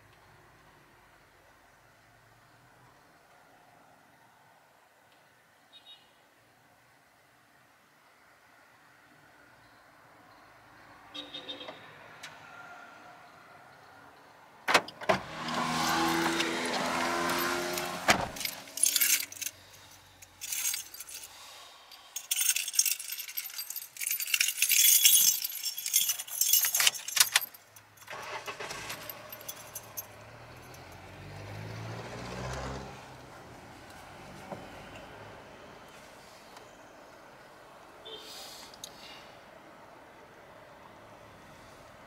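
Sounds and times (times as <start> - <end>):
motor vehicle passing: 15.2 - 19.8, 28.6 - 36.3
rapid clicking and jangling rattle: 15.7 - 21.4, 22.1 - 31.0.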